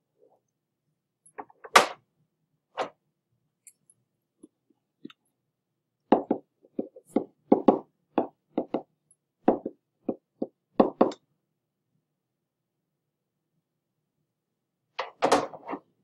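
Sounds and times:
pen knocking on writing surface: 0:06.1 - 0:11.2.

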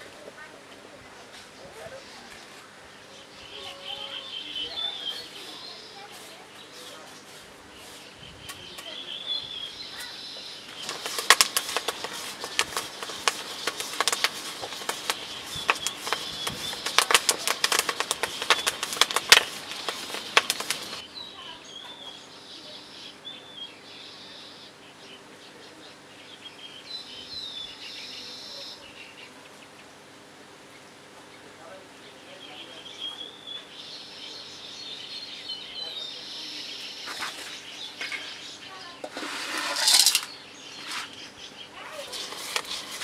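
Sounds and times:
small birds chirping: 0:01.1 - 0:30.0, 0:30.6 - 0:43.0
rapid crackling clicks: 0:10.7 - 0:21.0, 0:42.1 - 0:43.0.

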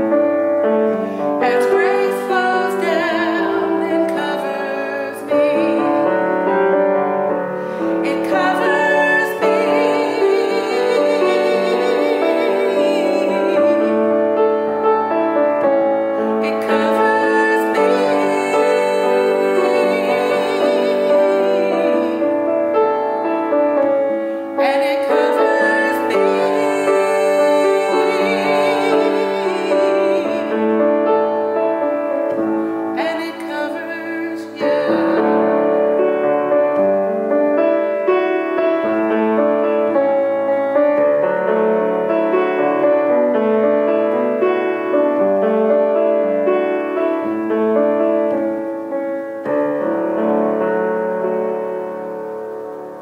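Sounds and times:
grand piano: 0:00.0 - 0:53.0
woman singing a hymn: 0:01.0 - 0:41.2.

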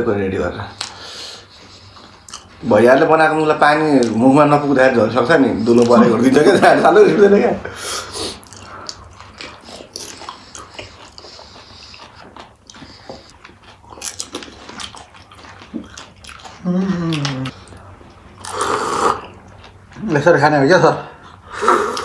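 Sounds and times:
man humming: 0:16.6 - 0:17.5.

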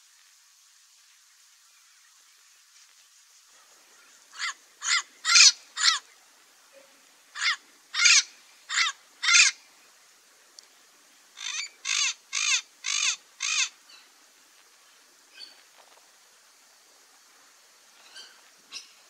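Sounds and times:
lorikeet squawking: 0:04.4 - 0:06.0, 0:07.4 - 0:09.6, 0:11.4 - 0:13.7.

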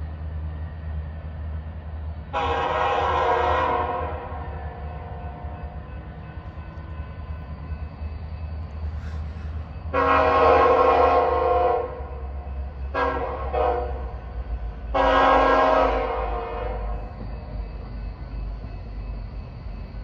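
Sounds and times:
low rumble of train: 0:00.0 - 0:20.0
locomotive horn blasts: 0:02.3 - 0:05.2, 0:09.9 - 0:12.3, 0:12.9 - 0:14.2, 0:14.9 - 0:17.0.

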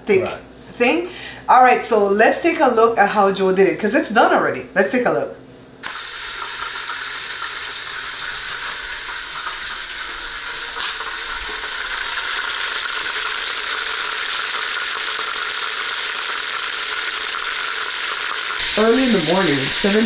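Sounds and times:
meat sizzling in hot oil: 0:05.8 - 0:20.0.

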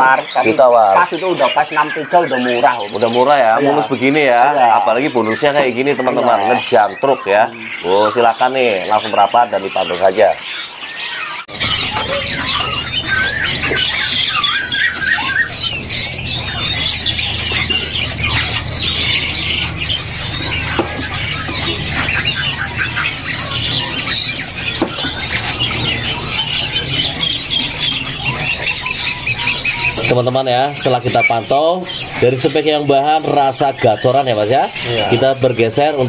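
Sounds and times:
birds chirping and whistling: 0:00.0 - 0:36.0
low hum: 0:11.5 - 0:32.3.

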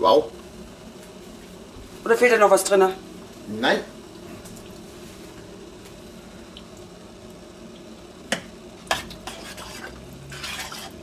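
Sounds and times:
metal spoon stirring thick sauce: 0:08.9 - 0:11.0
spoon scraping pot: 0:08.9 - 0:11.0.

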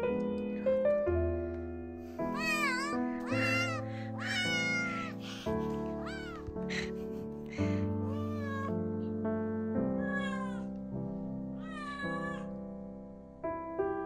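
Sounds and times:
soft background music: 0:00.0 - 0:14.0
kitten meowing: 0:02.3 - 0:07.0, 0:07.6 - 0:08.8, 0:10.0 - 0:10.7, 0:11.6 - 0:12.5.

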